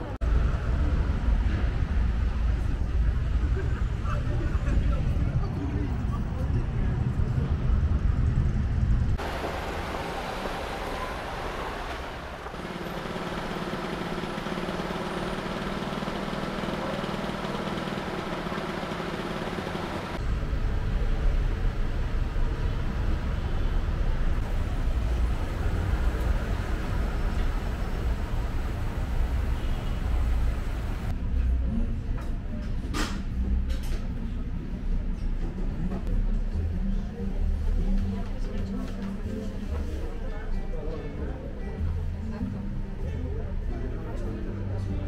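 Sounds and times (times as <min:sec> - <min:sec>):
road traffic rumble: 0:00.0 - 0:32.1.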